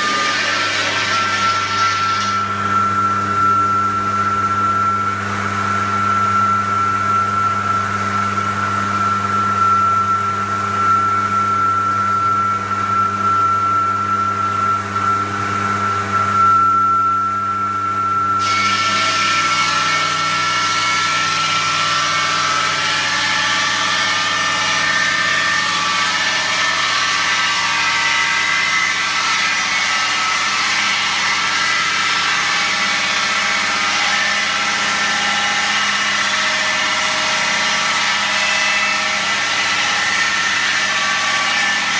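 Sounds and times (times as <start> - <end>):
saw blade grinding brick: 0.0 - 3.6, 18.4 - 41.9
masonry saw motor whine: 0.0 - 41.9.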